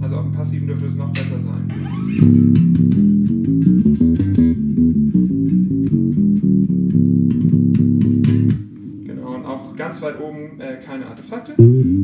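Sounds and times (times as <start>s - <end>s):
electric bass with octave effect: 0.0s - 8.6s, 11.6s - 12.0s.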